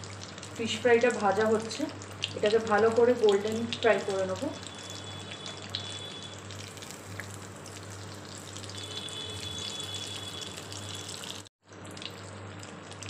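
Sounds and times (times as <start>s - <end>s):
fish deep-frying in oil: 0.0s - 13.0s.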